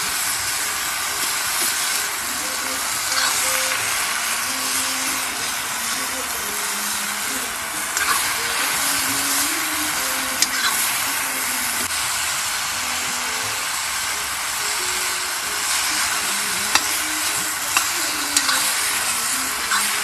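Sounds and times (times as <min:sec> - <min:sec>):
vegetables sizzling in a pan: 0:00.0 - 0:20.0
metal ladle stirring: 0:15.4 - 0:20.0.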